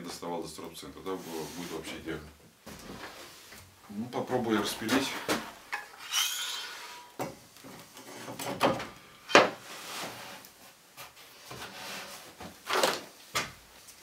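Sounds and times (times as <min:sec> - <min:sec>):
saw base plate scraping wood: 0:05.0 - 0:07.2.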